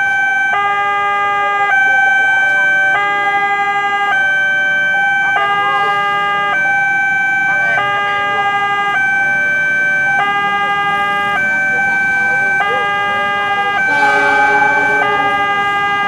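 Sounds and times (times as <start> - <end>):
level crossing two-tone alarm: 13.8 - 16.0.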